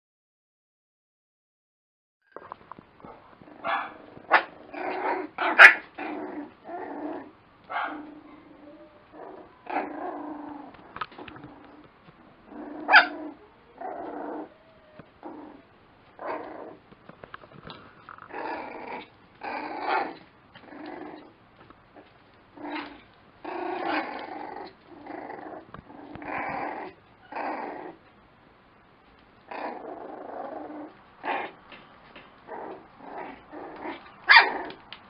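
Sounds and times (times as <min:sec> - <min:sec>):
puppies growling and yapping: 0:02.3 - 0:28.1, 0:29.4 - 0:35.0
puppy yelps: 0:03.6 - 0:06.1, 0:12.8 - 0:16.8, 0:32.5 - 0:34.8.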